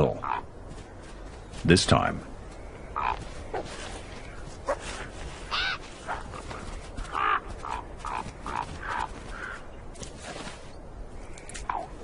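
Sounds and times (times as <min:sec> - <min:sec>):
short sharp animal calls: 0:04.6 - 0:06.2.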